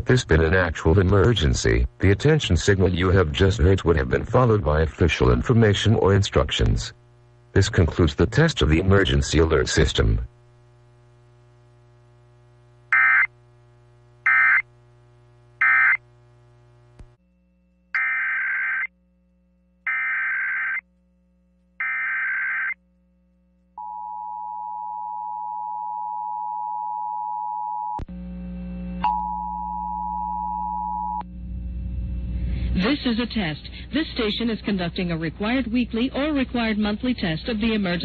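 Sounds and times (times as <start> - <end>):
data bursts: 14.3 - 14.6.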